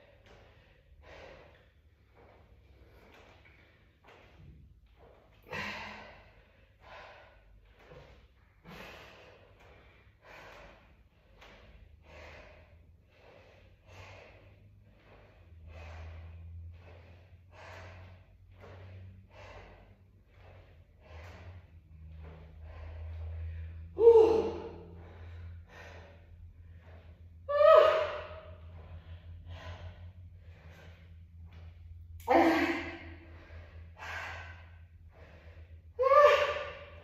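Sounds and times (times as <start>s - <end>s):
woman breathing hard: 0.0s - 37.0s.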